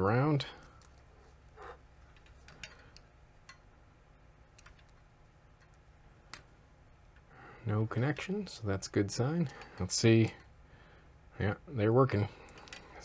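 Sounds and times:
low steady hum: 0.0s - 13.0s
test probes clicking on metal pins: 2.1s - 3.7s, 4.5s - 6.5s.

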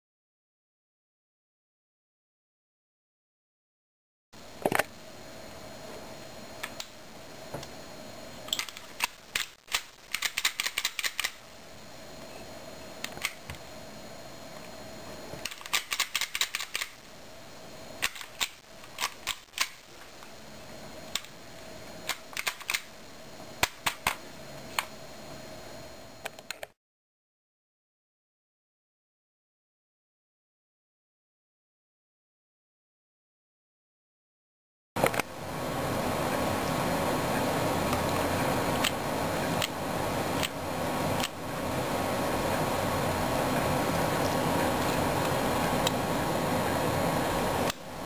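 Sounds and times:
toy pistol slide and trigger clicks: 15.5s - 17.0s.

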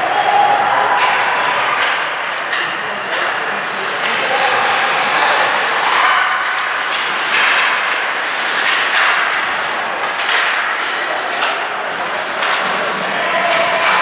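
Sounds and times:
hockey sticks and puck knocking: 0.9s - 3.4s, 4.0s - 14.0s
skates scraping on ice: 4.2s - 14.0s.

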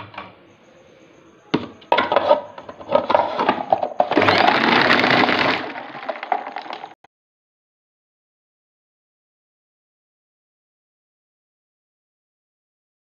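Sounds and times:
ice clattering against blades: 2.8s - 7.0s
food chopper crushing ice: 2.9s - 7.0s.

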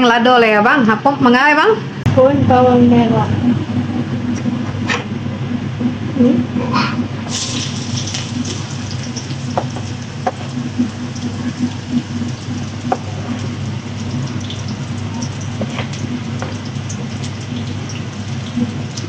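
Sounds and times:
low hum: 0.6s - 19.0s
paste sizzling in hot oil: 7.3s - 18.9s.

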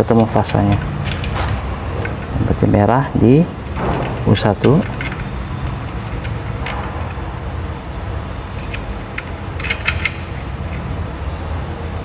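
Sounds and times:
metallic clicks of cable terminals: 3.6s - 7.5s, 8.5s - 11.0s.

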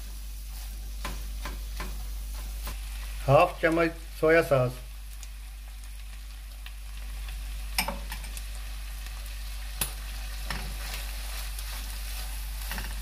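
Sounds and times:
chicken sizzling in a wok: 0.0s - 13.0s
spatula scraping a pan: 10.3s - 13.0s.

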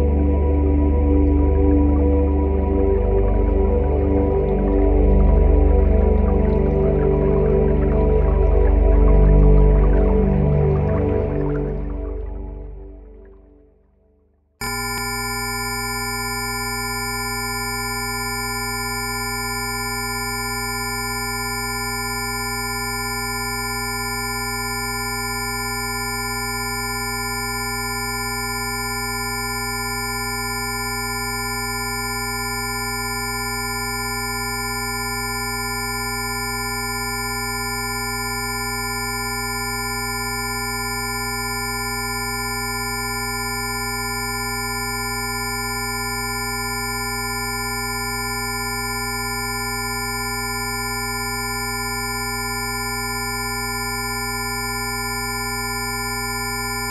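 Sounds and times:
steady electronic tones: 14.6s - 56.9s.

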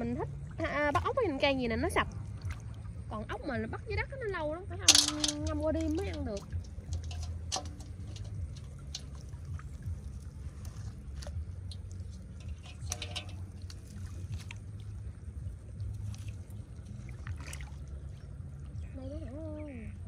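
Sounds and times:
shallow water splashing: 0.0s - 20.0s
steady low rumble: 0.0s - 20.0s.

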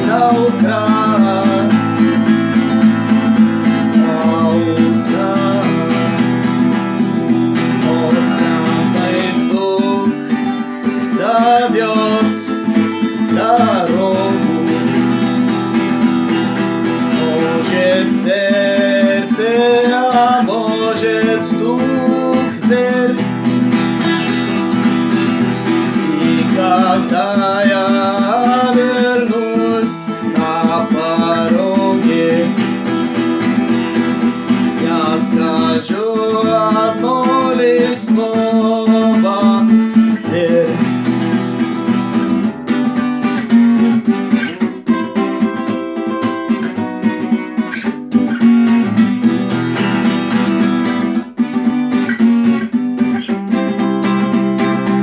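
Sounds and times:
man singing: 0.0s - 42.5s
acoustic guitar strumming: 0.0s - 55.0s.

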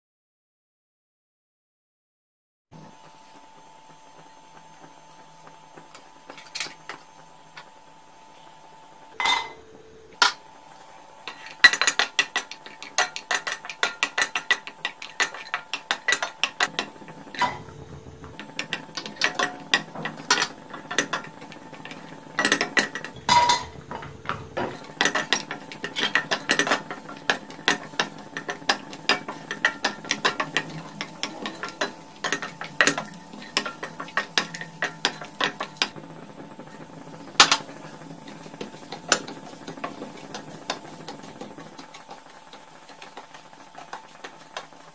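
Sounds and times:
wooden spatula scraping pan: 11.3s - 36.0s, 36.7s - 44.9s
metal spoon clinking pan: 22.4s - 35.9s.

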